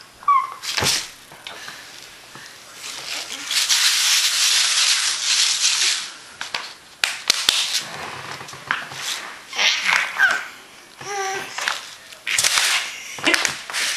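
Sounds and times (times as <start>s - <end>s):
rustling: 0.6s - 10.4s
baby babbling: 10.2s - 11.6s.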